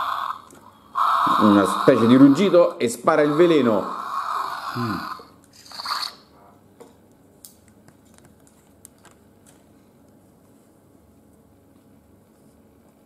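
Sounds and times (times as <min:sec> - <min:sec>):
electronic toy roar: 0:00.0 - 0:06.3.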